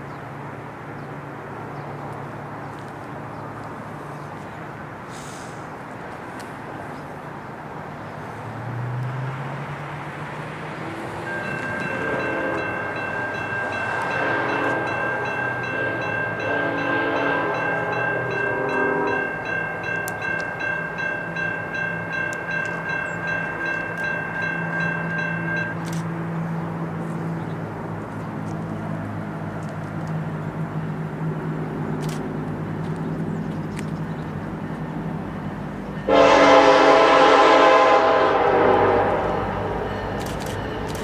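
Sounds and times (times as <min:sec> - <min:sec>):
locomotive drone: 0:00.0 - 0:41.0
crossing warning bell ringing: 0:11.1 - 0:26.1, 0:34.4 - 0:41.0
distant train air horn blasts: 0:11.4 - 0:19.5, 0:36.0 - 0:41.0.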